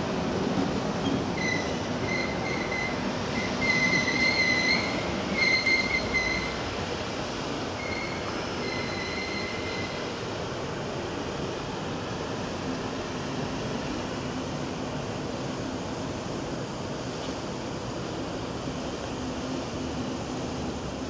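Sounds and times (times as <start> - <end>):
train rumble: 0.0 - 21.0
train wheels squealing: 1.0 - 6.7, 7.7 - 10.2.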